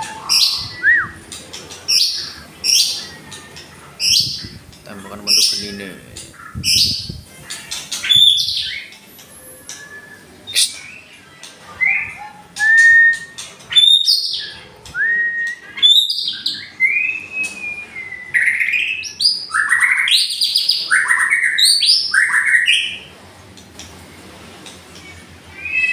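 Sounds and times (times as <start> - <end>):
bird singing whistled phrases: 0.0 - 1.2, 9.6 - 11.0, 11.8 - 23.0, 25.5 - 25.9.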